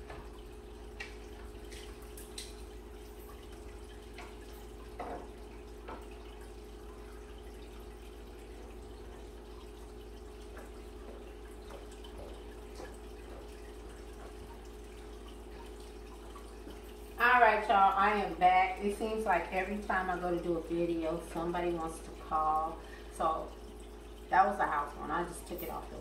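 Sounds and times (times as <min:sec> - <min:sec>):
oil popping in frying pan: 0:00.0 - 0:02.8.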